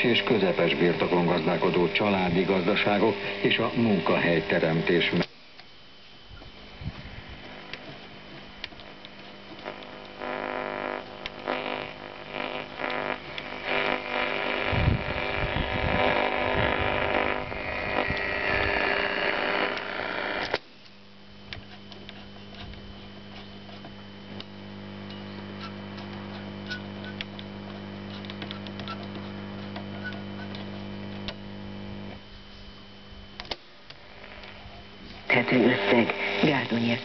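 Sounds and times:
radio static and interference: 0.0s - 5.3s, 5.9s - 37.0s
low mains hum: 0.0s - 37.0s
radio whistle: 26.5s - 27.3s, 28.5s - 30.6s.

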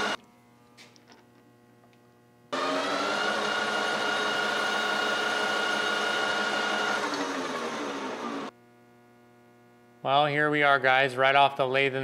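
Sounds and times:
metal lathe whining: 2.6s - 8.5s.

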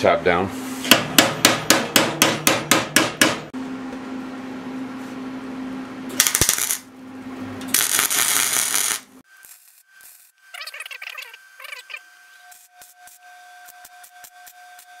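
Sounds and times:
hammer tapping sheet metal: 0.9s - 3.5s
welder arc crackling: 6.1s - 6.9s, 7.7s - 15.0s.

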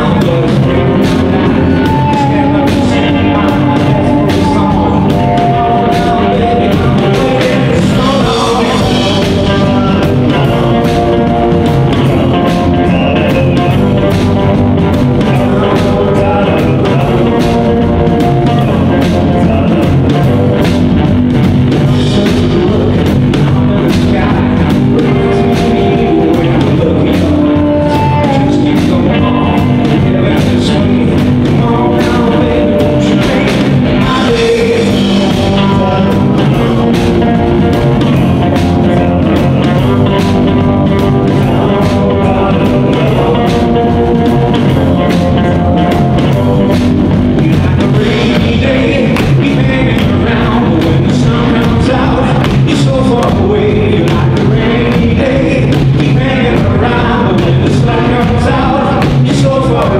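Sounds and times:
drum kit: 0.0s - 59.9s
electric guitars: 0.0s - 59.9s
person singing: 0.0s - 59.9s
harmonica: 25.0s - 30.2s.

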